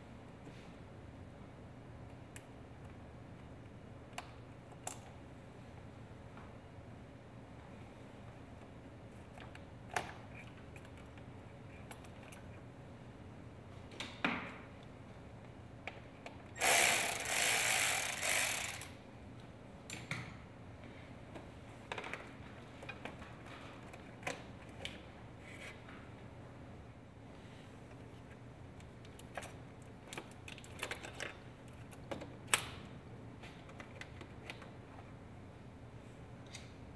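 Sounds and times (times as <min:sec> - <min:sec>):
hand ratchet clicking: 0:16.6 - 0:19.0
clicks and knocks of parts: 0:27.9 - 0:34.8.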